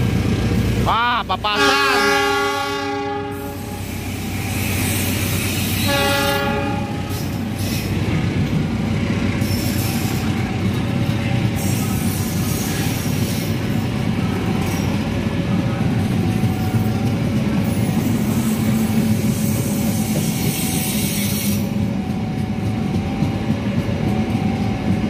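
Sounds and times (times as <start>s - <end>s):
train wheels rumbling on rails: 0.0s - 25.0s
diesel locomotive horn: 1.4s - 4.0s, 5.4s - 7.4s.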